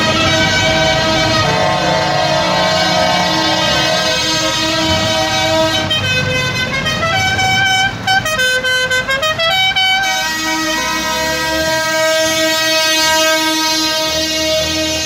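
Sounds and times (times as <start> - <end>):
multi-tone air horn: 0.0 - 15.0
tractor engines running: 0.0 - 15.0.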